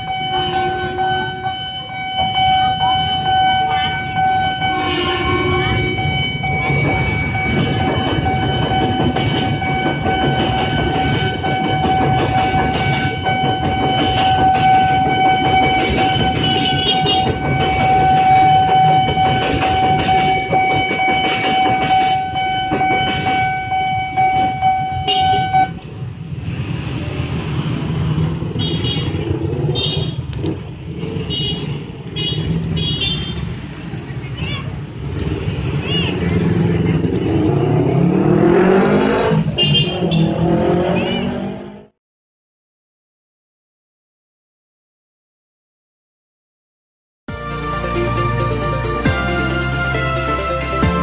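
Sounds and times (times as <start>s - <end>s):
level crossing siren high tone: 0.0s - 25.7s
electric train rumbling: 0.0s - 41.9s, 47.3s - 51.0s
road traffic: 0.0s - 42.0s, 47.3s - 51.0s.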